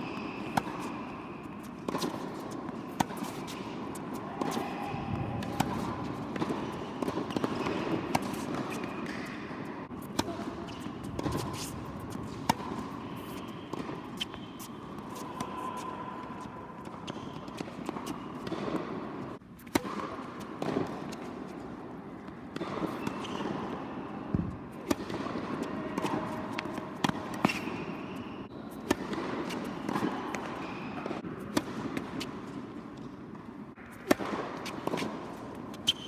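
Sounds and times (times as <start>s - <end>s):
constant background noise: 0.0s - 36.0s
tennis racket hitting ball: 0.3s - 21.4s, 24.3s - 28.0s, 28.8s - 32.6s, 33.8s - 36.0s
tennis ball bouncing: 0.4s - 15.8s, 24.3s - 28.0s, 33.8s - 36.0s.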